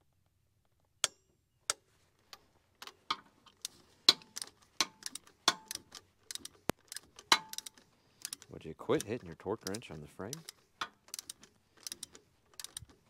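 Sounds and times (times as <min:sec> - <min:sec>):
wrench clinking against metal: 0:03.1 - 0:12.9.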